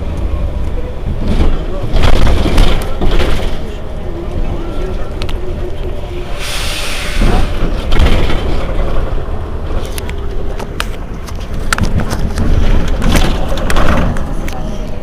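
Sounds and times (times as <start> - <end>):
bus diesel engine running: 0.0 - 15.0
compressed air hiss: 6.4 - 7.3.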